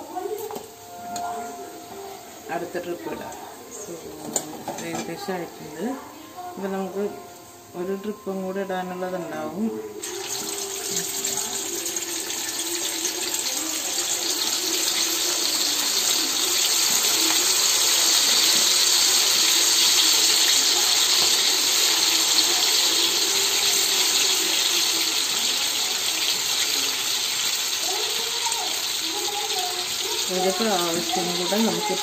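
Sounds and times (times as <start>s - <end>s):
chicken deep-frying in oil: 10.0s - 32.0s.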